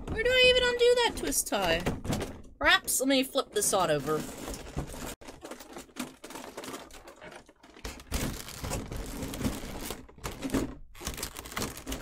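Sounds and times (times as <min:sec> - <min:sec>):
packaging clicking and crinkling: 0:04.1 - 0:12.0.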